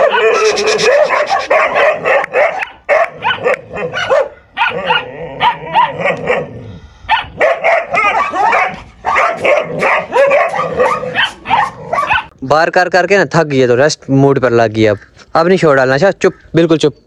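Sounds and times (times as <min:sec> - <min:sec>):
dogs barking and yapping: 0:00.0 - 0:12.4.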